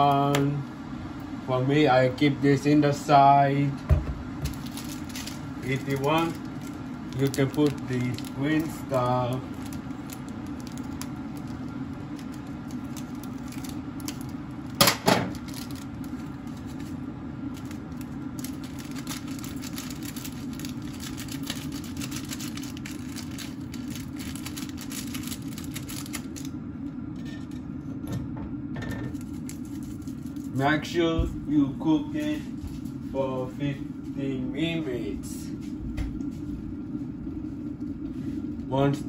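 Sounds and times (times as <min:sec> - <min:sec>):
steady low hum: 0:00.0 - 0:39.0
plastic packet crinkling: 0:04.4 - 0:26.5, 0:29.1 - 0:30.6
packet tearing crackle: 0:04.4 - 0:26.6, 0:29.1 - 0:30.7.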